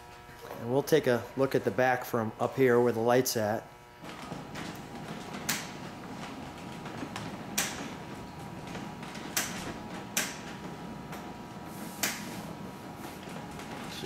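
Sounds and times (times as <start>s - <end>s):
turntable mechanical hum: 0.0s - 14.0s.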